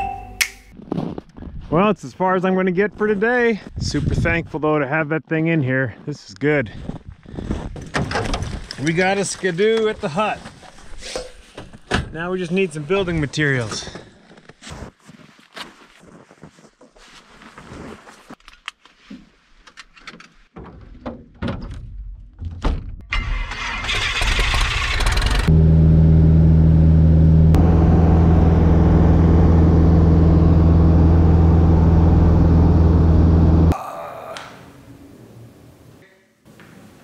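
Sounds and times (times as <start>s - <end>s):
aircraft engine running: 25.1s - 33.7s.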